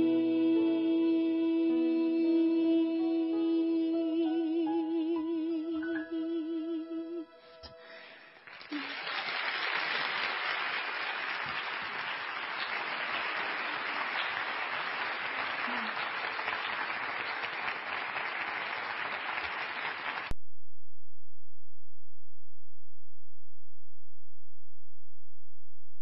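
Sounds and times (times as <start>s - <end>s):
audience applauding: 8.4s - 20.3s.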